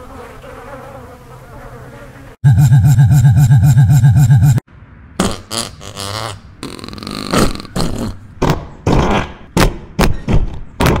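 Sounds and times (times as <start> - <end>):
fart noises: 5.2 - 9.3.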